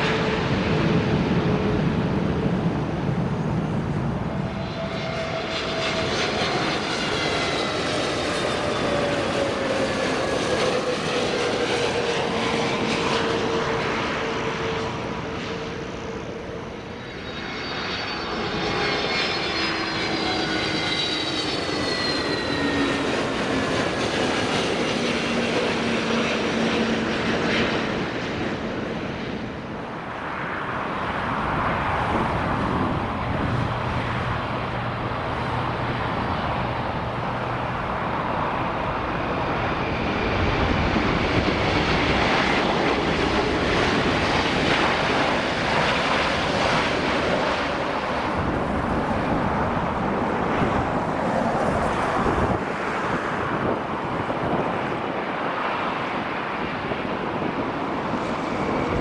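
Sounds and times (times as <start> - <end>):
jet engines running: 0.0 - 59.0
wind on microphone: 21.9 - 59.0.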